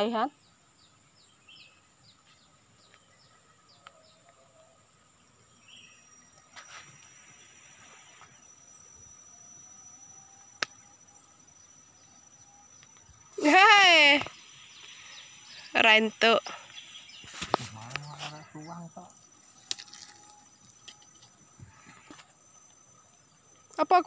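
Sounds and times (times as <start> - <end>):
birds chirping: 0.0 - 24.0
insects whining: 0.0 - 24.0
rustle: 5.6 - 8.9, 16.4 - 23.3.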